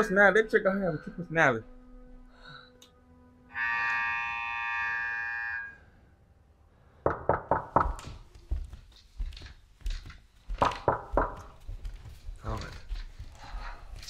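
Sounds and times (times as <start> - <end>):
sharp knocks: 7.1 - 8.3, 10.5 - 11.6.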